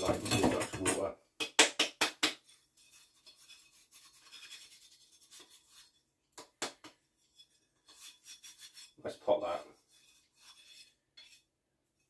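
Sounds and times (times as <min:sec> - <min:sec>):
hands and tools scratching: 0:02.4 - 0:06.1, 0:07.2 - 0:11.5.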